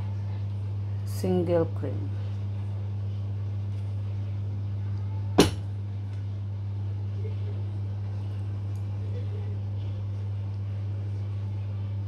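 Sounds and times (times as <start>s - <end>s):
steady low hum: 0.0s - 12.0s
sharp knock: 5.4s - 5.6s.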